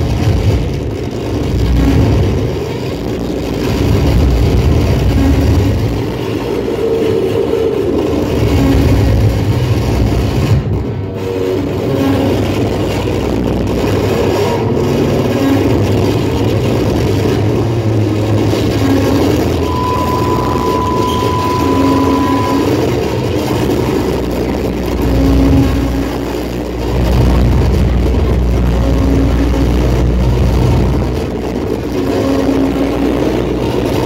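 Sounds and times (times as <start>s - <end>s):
rumbling noise music: 0.0s - 34.0s
steady high tone: 17.9s - 26.6s.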